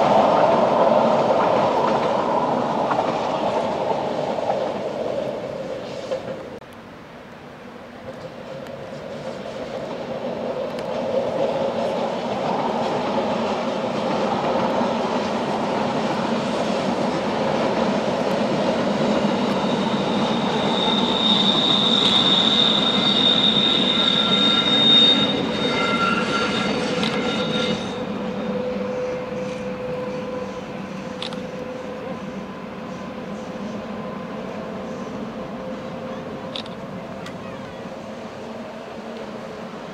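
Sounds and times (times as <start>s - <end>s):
train wheels rumbling on rail: 0.0s - 6.6s, 7.9s - 39.9s
train wheels squealing: 19.0s - 38.5s.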